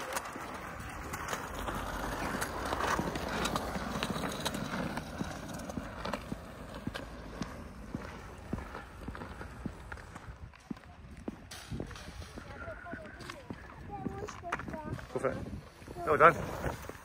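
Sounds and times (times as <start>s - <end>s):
skateboard decks clacking: 0.0s - 10.4s
hard wheels rolling on concrete: 0.0s - 17.0s.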